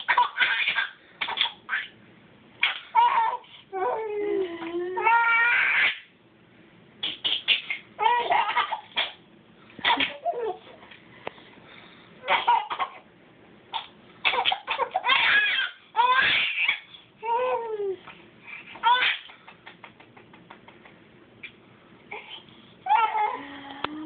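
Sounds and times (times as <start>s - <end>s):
baby laughing: 0.0s - 2.0s, 2.6s - 3.5s, 7.0s - 9.2s, 9.8s - 10.8s, 12.2s - 13.0s, 13.8s - 20.9s.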